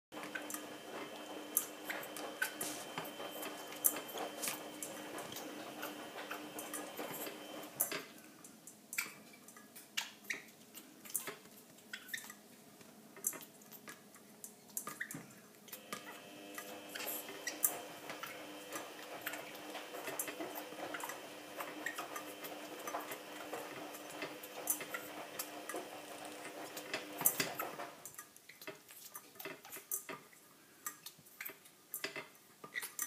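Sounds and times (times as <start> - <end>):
steady hum: 0.1 - 7.8.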